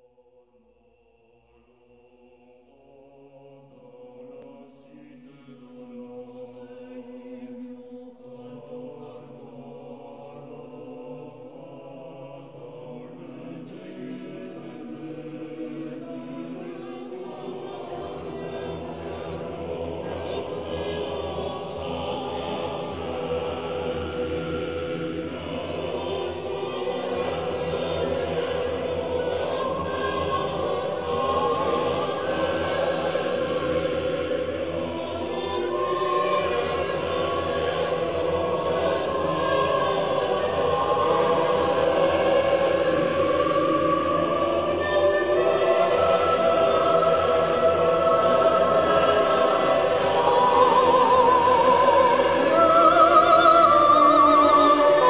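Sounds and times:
choir chanting long notes: 0.0s - 55.0s.

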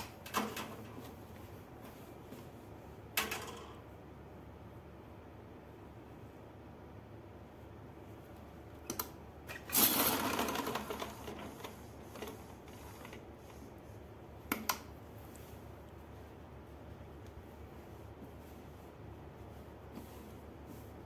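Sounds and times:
sewing machine stitching: 9.5s - 13.3s.

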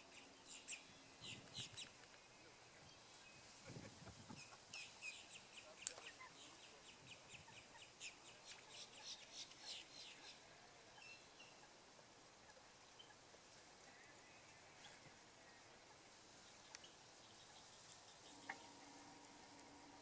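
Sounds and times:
bird chirping: 0.0s - 20.0s.

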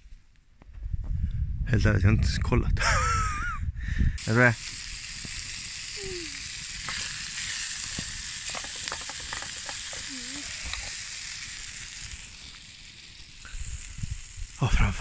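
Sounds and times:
food sizzling in a pot: 4.2s - 15.0s.

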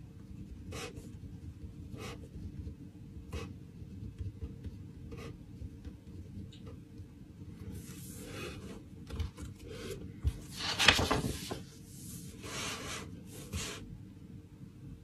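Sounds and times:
faint steady hum: 0.0s - 15.0s
paper rustling: 7.8s - 13.6s
page turning: 10.3s - 12.2s.

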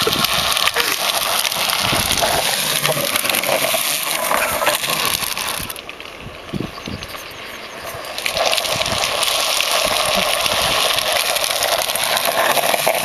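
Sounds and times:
wheels scraping on tarmac: 0.0s - 13.0s.

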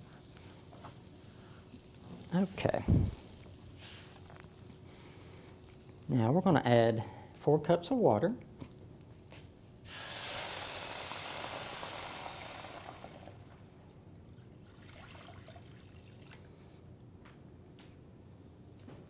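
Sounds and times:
water pouring into a pan: 9.8s - 16.5s.

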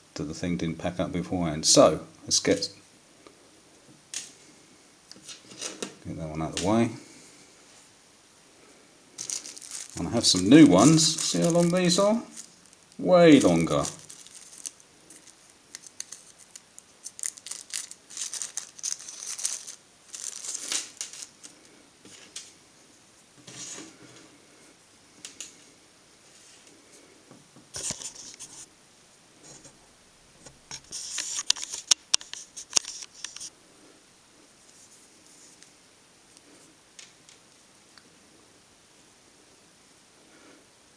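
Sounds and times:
plastic bag crinkling: 9.2s - 21.6s.

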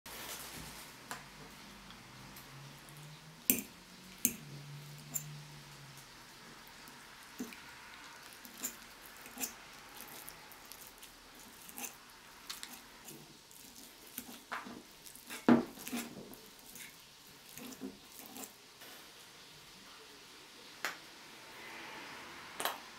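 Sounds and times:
fork mashing eggs: 3.5s - 5.4s, 6.4s - 18.6s
fork tines clicking on bowl: 8.5s - 9.6s.

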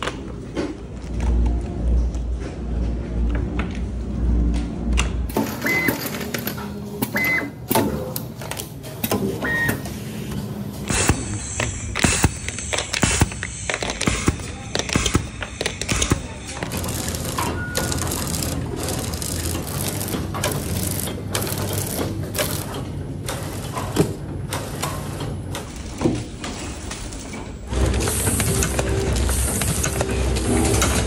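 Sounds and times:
packaging machine clattering: 10.9s - 31.0s.

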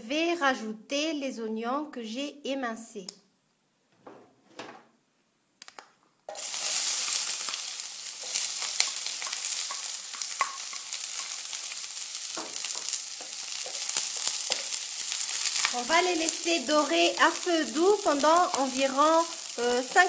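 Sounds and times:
onions sizzling in hot oil: 6.3s - 20.0s.

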